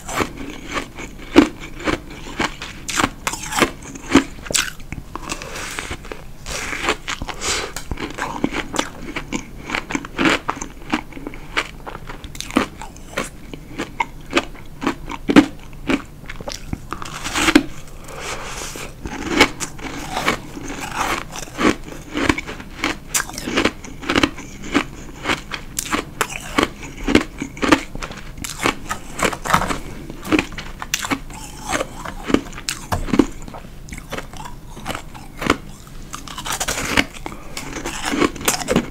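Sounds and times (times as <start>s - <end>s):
person crunching ice: 16.5s - 38.9s.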